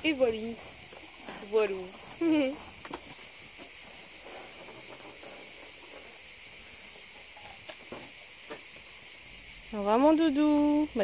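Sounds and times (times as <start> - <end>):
insects buzzing: 0.0 - 11.0
faint rustling: 0.1 - 8.6.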